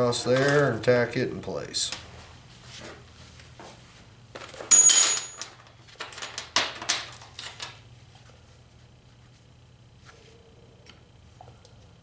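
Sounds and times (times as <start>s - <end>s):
tools clattering on metal bench: 4.4s - 7.8s.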